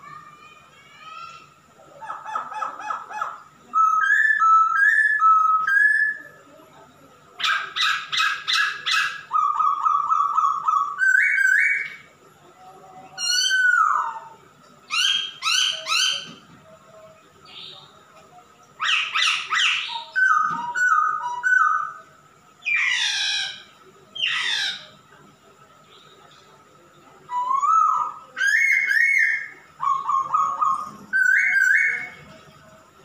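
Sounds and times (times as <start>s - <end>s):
bird singing whistled phrases: 3.7s - 6.4s, 8.0s - 12.1s, 13.2s - 14.3s, 18.8s - 22.0s, 27.3s - 32.2s.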